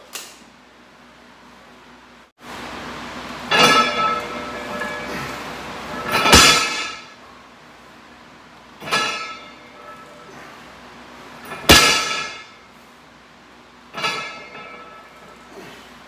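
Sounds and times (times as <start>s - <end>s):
barbell clanging on platform: 3.5s - 5.1s, 5.9s - 7.2s, 8.8s - 10.2s, 11.4s - 12.6s, 14.0s - 15.2s.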